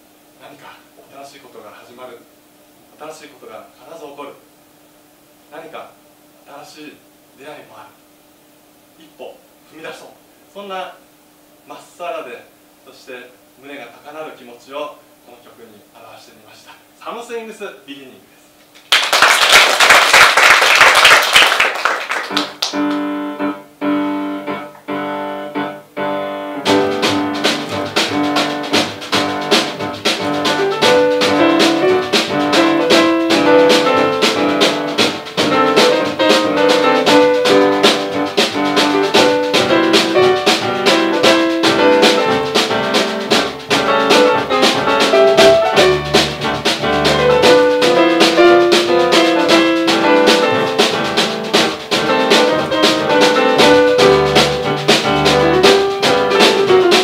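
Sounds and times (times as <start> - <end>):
audience applause: 18.8 - 22.8
grand piano chords: 22.2 - 57.0
drum kit steady beat: 26.6 - 57.0.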